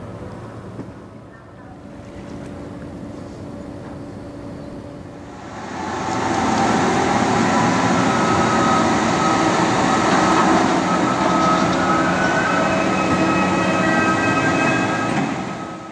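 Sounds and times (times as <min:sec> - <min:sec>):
loud mechanical hum: 0:00.0 - 0:15.9
thin whining tones: 0:03.3 - 0:15.9.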